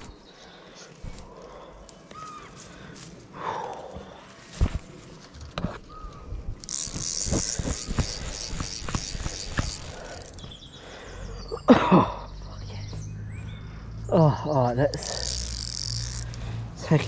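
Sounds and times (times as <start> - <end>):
rod and reel knocks: 6.6 - 10.5
fly reel ratchet buzzing: 6.6 - 10.6, 14.8 - 17.0.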